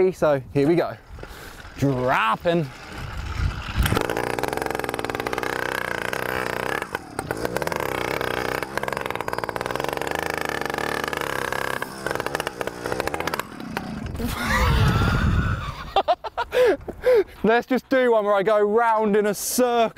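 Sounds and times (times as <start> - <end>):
small petrol engine revving: 1.0 - 16.0.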